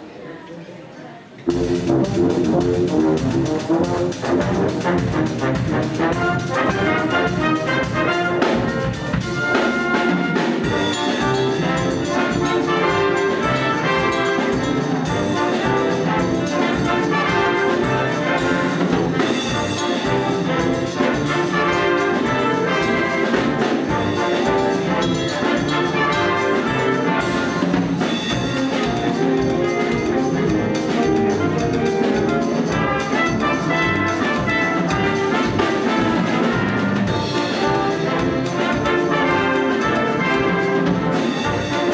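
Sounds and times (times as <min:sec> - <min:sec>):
wind band playing latin music: 0:01.5 - 0:41.9.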